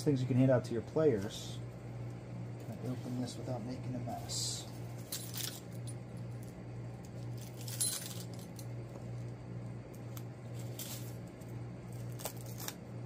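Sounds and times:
keys jangling: 5.0 - 6.0, 7.4 - 8.6.

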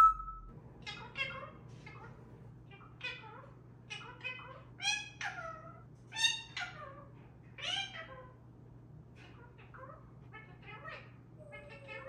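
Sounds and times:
parrot calling: 0.0 - 1.5, 9.2 - 12.0.

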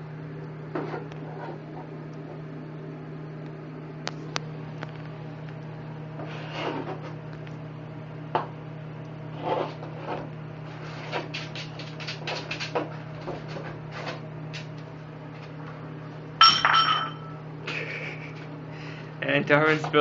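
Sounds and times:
bowl clattering with ringing tone: 16.4 - 17.5.

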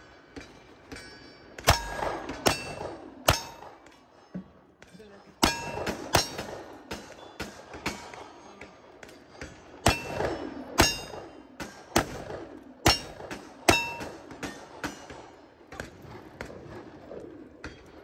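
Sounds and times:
steel plates ringing: 0.6 - 3.8, 5.4 - 6.5, 9.9 - 11.3, 12.9 - 14.2.

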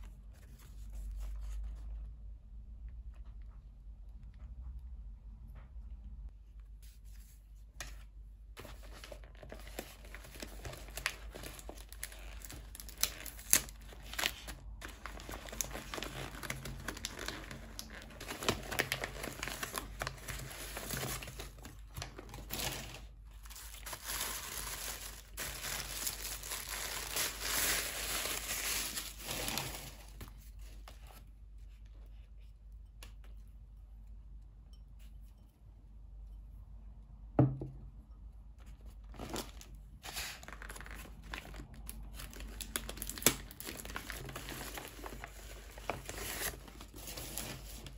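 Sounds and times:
wrapping paper crinkling and tearing: 8.6 - 31.2, 38.9 - 47.9.

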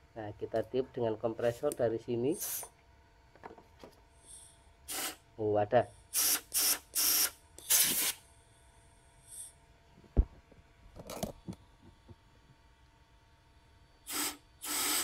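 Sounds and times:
compressed air hissing: 2.3 - 2.7, 4.2 - 5.2, 6.1 - 8.2, 14.0 - 15.0.

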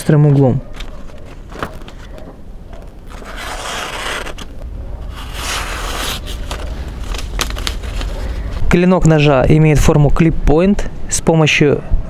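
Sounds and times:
knife slicing paper: 3.1 - 4.5, 5.1 - 8.4.

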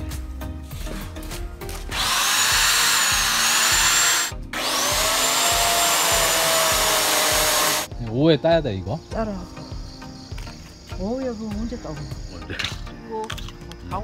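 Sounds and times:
electric chainsaw motor whine: 1.9 - 7.9.

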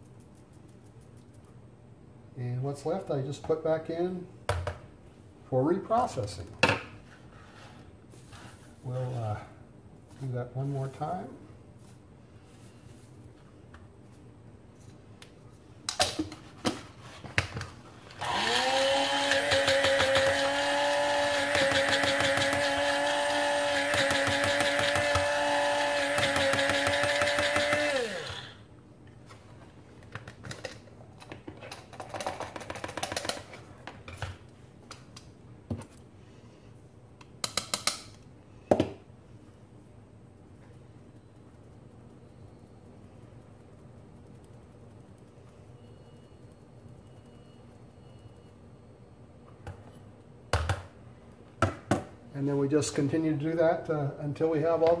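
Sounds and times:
electric coffee grinder whining: 18.2 - 28.6.

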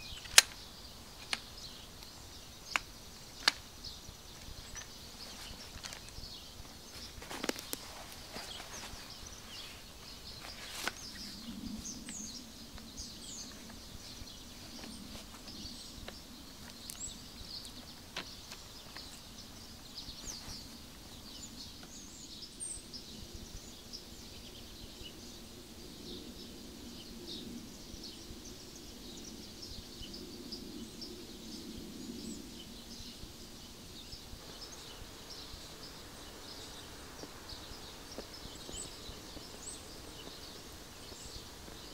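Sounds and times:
small birds chirping: 0.0 - 41.9
sharp click: 0.1 - 0.6.

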